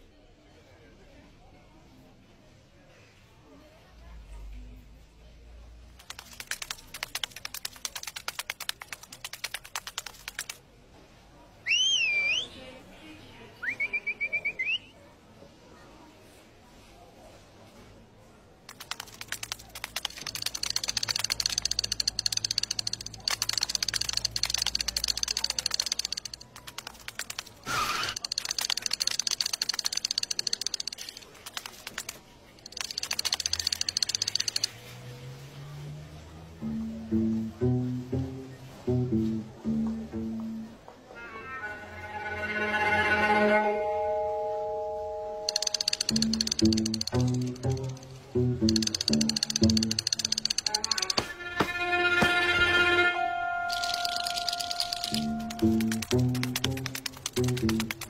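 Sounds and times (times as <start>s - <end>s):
light clicking skittering on tiles: 5.9s - 10.6s, 18.7s - 35.2s, 45.5s - 51.3s, 53.7s - 58.0s.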